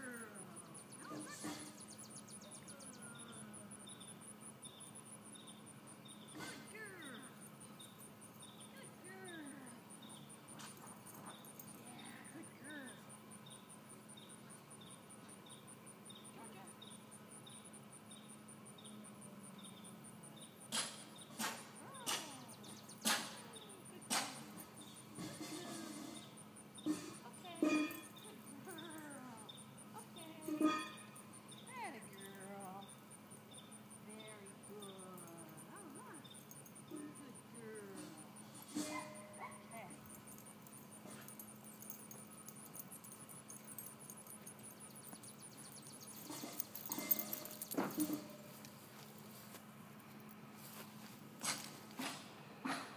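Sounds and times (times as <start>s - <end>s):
insects trilling: 0.0s - 51.1s
insect chirping slowly: 7.0s - 24.1s, 26.2s - 47.2s.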